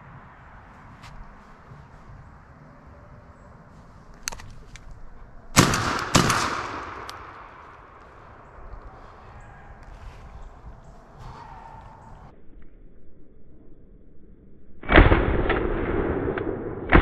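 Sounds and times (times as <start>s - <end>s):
shotgun blasts echoing: 5.5s - 8.5s.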